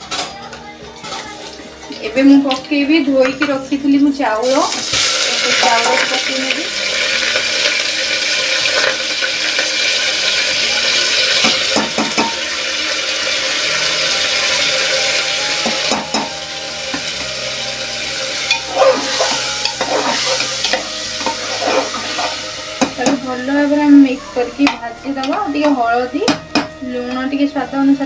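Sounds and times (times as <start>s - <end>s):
rice sizzling in hot fat: 1.3s - 28.0s
spoon scraping metal pot: 18.4s - 23.3s.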